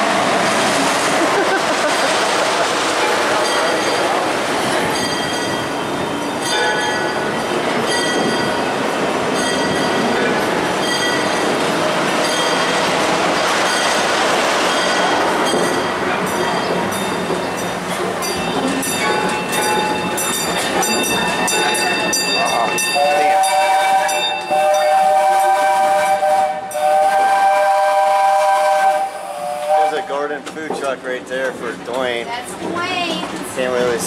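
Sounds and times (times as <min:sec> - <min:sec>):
train wheels rumbling on rails: 0:00.0 - 0:34.0
steam locomotive whistle: 0:22.9 - 0:30.2.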